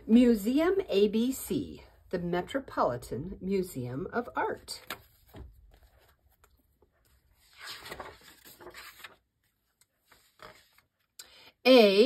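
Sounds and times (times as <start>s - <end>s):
book page turning: 4.8s - 11.2s.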